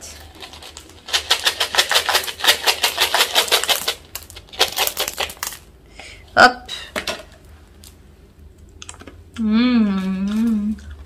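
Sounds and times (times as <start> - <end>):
candies clattering out of tube: 0.4 - 5.6.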